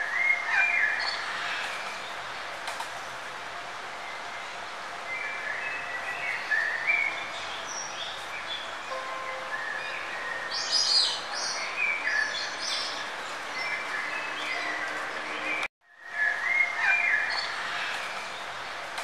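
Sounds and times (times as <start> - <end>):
birds chirping: 0.0 - 19.0.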